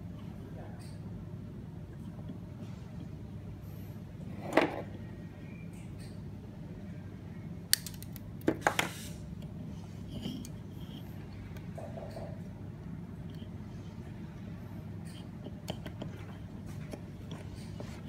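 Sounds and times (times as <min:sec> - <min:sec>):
low steady hum: 0:00.0 - 0:18.0
pliers snipping wire: 0:07.7 - 0:08.2.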